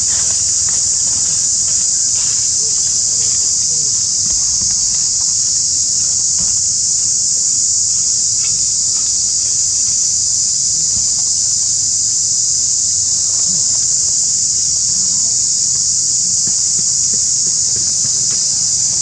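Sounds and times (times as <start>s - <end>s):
high-pitched insect chorus: 0.0s - 19.0s.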